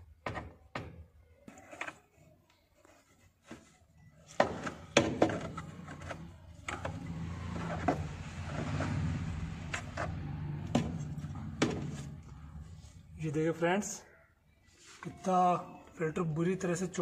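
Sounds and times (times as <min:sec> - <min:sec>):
clicks and knocks of metal and plastic: 0:03.4 - 0:07.0.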